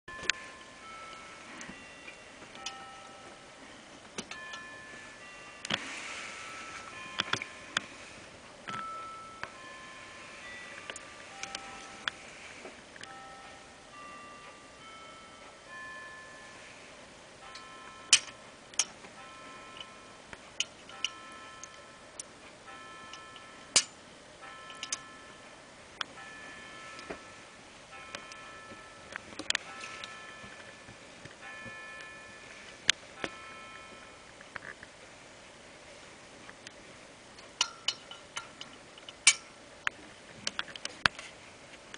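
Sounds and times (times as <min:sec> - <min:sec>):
faint high hum: 0:00.1 - 0:41.9.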